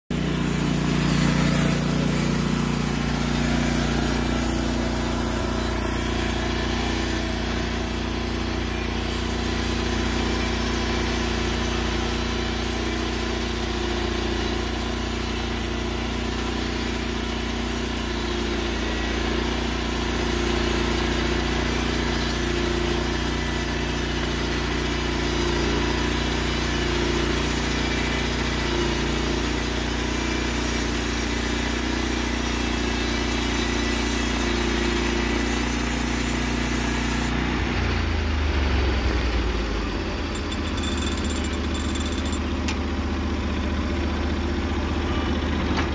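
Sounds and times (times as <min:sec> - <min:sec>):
band sawmill cutting log: 0:00.1 - 0:41.8, 0:42.4 - 0:45.9.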